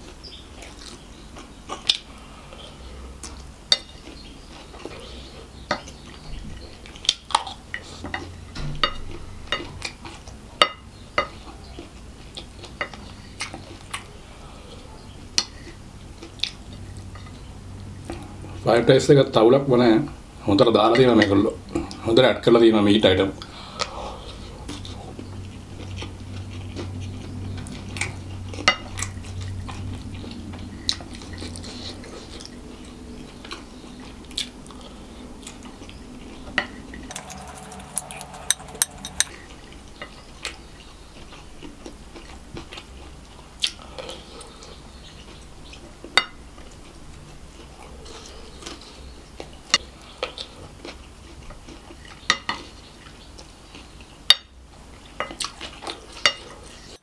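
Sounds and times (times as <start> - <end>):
wooden spoon scraping a plate: 37.1 - 39.4.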